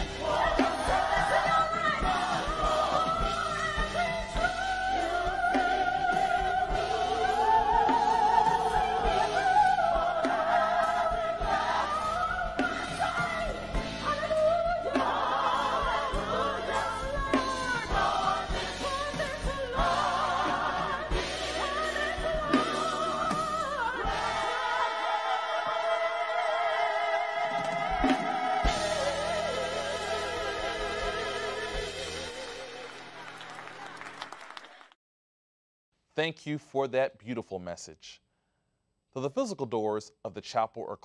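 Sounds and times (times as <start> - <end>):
gospel choir singing: 0.0 - 33.5.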